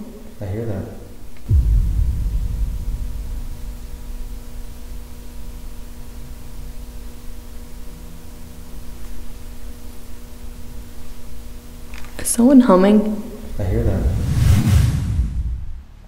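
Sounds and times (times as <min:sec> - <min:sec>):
faint low humming: 0:00.0 - 0:16.0
recording hiss and rumble: 0:00.0 - 0:16.0
steady electronic tone: 0:01.5 - 0:08.4.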